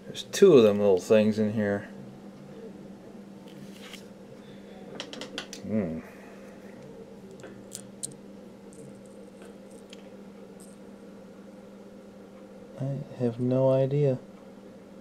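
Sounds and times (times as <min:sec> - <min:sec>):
steady low hum: 0:00.0 - 0:15.0
man humming: 0:05.6 - 0:06.7.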